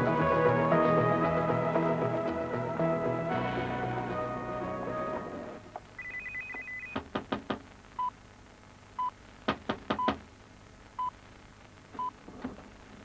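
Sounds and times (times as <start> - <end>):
knocking on a door: 7.0 - 7.6, 9.5 - 10.3.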